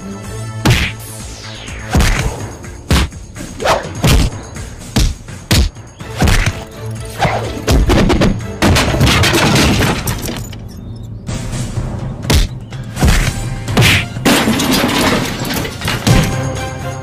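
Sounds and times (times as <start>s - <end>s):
background film score: 0.0s - 17.0s
punch and kick impacts: 0.6s - 1.0s, 1.9s - 2.3s, 2.9s - 3.2s, 3.8s - 6.6s, 12.3s - 14.2s.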